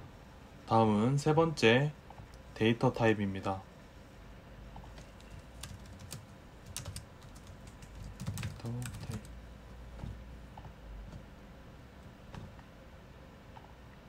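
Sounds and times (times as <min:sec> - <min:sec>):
keyboard typing: 0:04.8 - 0:09.4.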